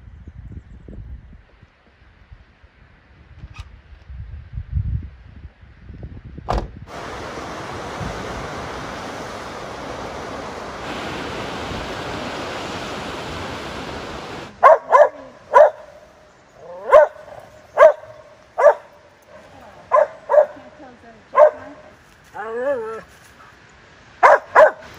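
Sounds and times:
surf washing over rocks: 0:06.9 - 0:15.6
dog barking: 0:14.6 - 0:16.0, 0:16.7 - 0:19.0, 0:19.9 - 0:20.6, 0:21.4 - 0:21.9, 0:24.2 - 0:24.9.

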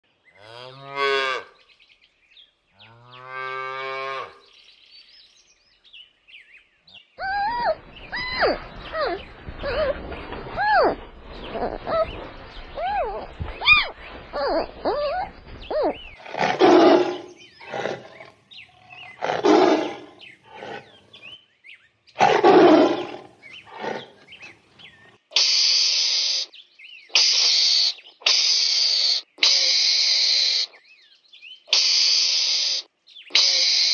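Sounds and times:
harsh hissing animal bursts: 0:25.4 - 0:26.5, 0:27.1 - 0:30.8, 0:31.7 - 0:33.9
red panda squeaks and chirps: 0:31.7 - 0:33.9.

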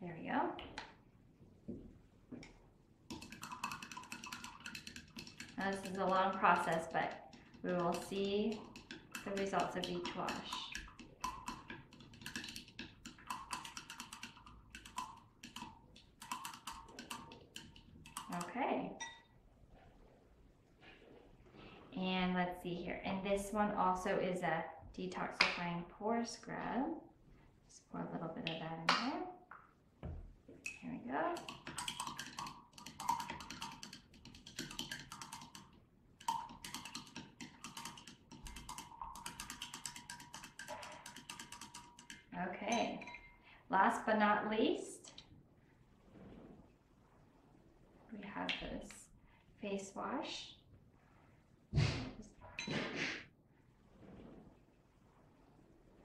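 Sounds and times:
stick clicking against glass: 0:03.1 - 0:19.2, 0:31.4 - 0:42.3
faint glass ringing: 0:19.0 - 0:19.4, 0:42.7 - 0:43.4.

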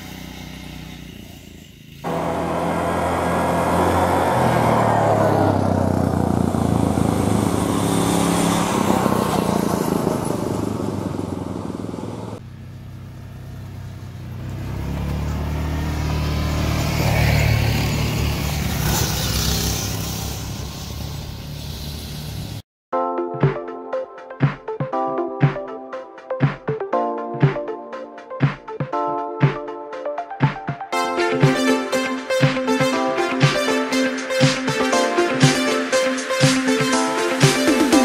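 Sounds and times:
go-kart engine running: 0:00.0 - 0:22.6.

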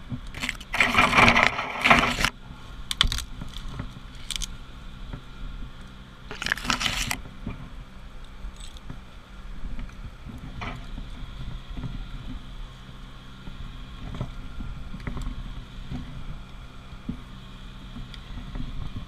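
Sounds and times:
low steady hum: 0:00.0 - 0:19.0
leaves scraping against helmet: 0:00.3 - 0:04.6, 0:06.3 - 0:07.3
metal climbing hardware clinking: 0:08.5 - 0:08.9.

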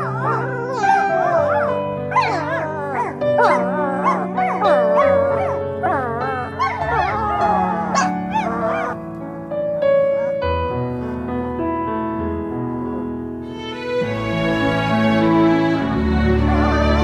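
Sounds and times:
puppies howling and whining: 0:00.0 - 0:09.2, 0:09.9 - 0:11.2
slow piano music: 0:00.0 - 0:17.0.

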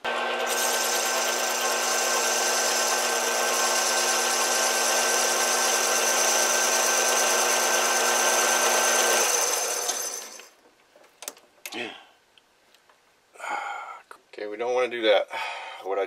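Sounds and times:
metal lathe whining: 0:00.0 - 0:10.5.

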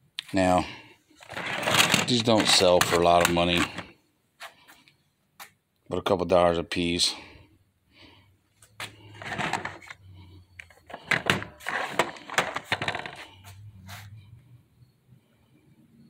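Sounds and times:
plastic toy trucks clattering: 0:01.2 - 0:03.9, 0:09.0 - 0:10.0, 0:10.6 - 0:13.4.

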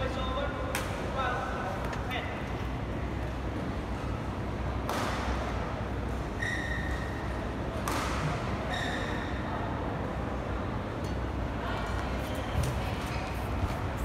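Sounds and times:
steady low hum: 0:00.0 - 0:14.0
shoes squeaking on court: 0:06.4 - 0:07.2, 0:08.7 - 0:09.3.

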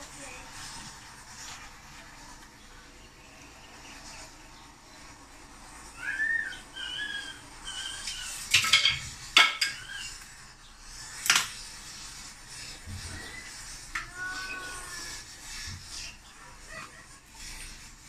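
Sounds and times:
utensils and dishes clinking: 0:07.7 - 0:10.2.

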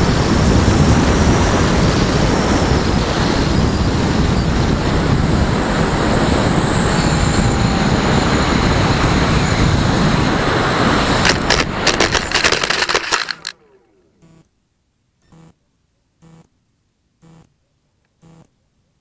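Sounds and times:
rushing airflow noise: 0:00.0 - 0:13.6.

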